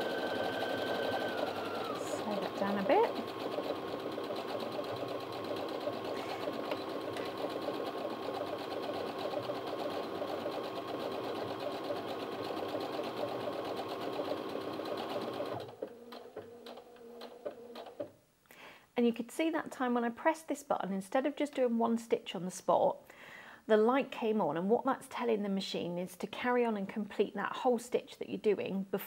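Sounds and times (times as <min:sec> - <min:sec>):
sewing machine stitching: 0:00.0 - 0:18.1.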